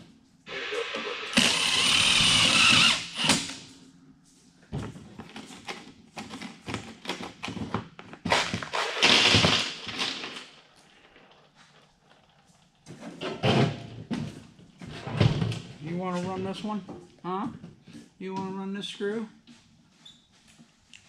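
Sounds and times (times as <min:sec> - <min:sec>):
cordless drill whine: 0:00.5 - 0:03.5.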